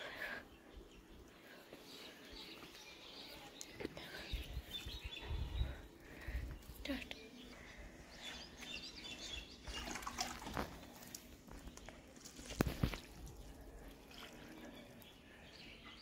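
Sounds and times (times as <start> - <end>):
water trickling onto soil: 9.1 - 15.5.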